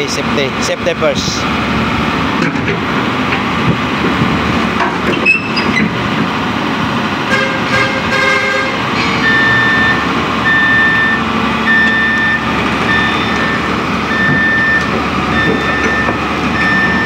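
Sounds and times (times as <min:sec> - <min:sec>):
excavator engine running: 0:00.0 - 0:17.0
excavator travel alarm beeping: 0:09.2 - 0:17.0.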